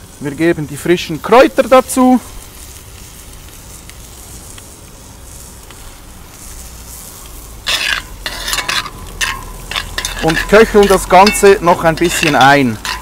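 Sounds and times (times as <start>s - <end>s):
sauce simmering hiss: 0.0s - 13.0s
spoon scraping a pot: 7.7s - 13.0s.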